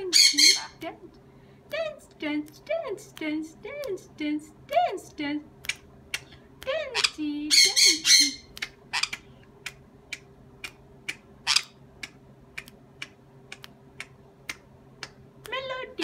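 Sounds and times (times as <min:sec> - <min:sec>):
parrot squawk: 0:00.1 - 0:00.8, 0:07.0 - 0:09.3, 0:11.1 - 0:11.8
fingers snapping: 0:02.4 - 0:04.0, 0:05.6 - 0:06.8, 0:08.4 - 0:11.3, 0:12.0 - 0:15.6.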